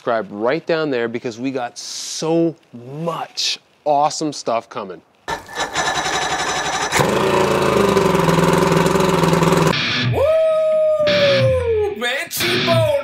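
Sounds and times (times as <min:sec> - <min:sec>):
drawn-out sliding tone: 0:05.3 - 0:09.7
outboard motor running: 0:05.3 - 0:09.7.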